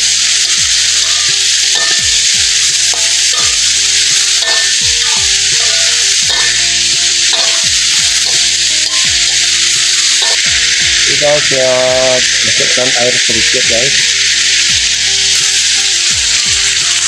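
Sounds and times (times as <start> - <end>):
food sizzling in hot oil: 0.0 - 17.0
metal spatula stirring in wok: 0.1 - 11.0.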